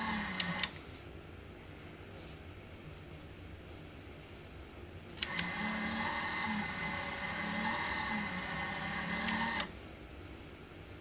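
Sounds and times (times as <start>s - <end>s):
toy motor whining: 0.0s - 0.7s, 5.2s - 9.7s.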